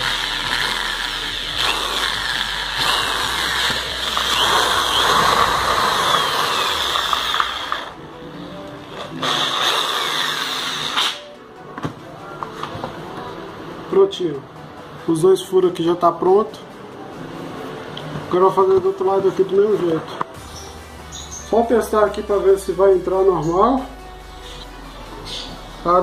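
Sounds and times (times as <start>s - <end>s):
drill bit rasping plastic: 0.0s - 7.9s
electric drill whine: 0.0s - 8.0s.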